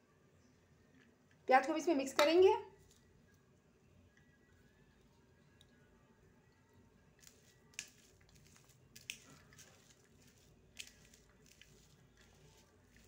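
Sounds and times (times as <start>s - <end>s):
hand squishing mashed potato: 7.1s - 13.0s.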